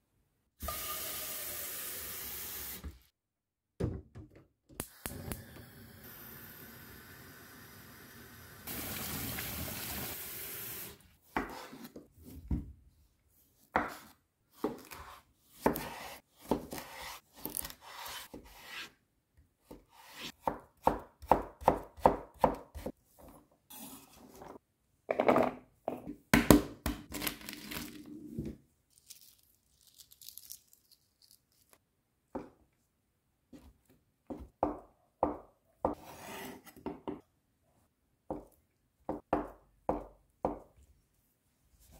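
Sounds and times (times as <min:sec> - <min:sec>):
knife chopping on wooden board: 0:13.8 - 0:18.2, 0:19.7 - 0:22.9.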